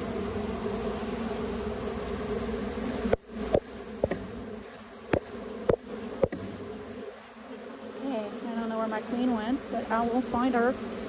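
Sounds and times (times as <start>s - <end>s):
bees buzzing: 0.0s - 11.0s
sharp knocks on hive: 3.1s - 6.8s.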